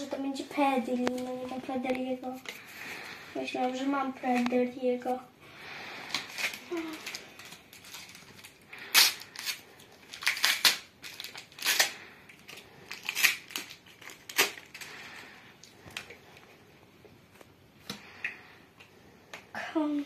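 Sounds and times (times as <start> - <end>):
foil wrapper crackling: 6.1 - 15.3.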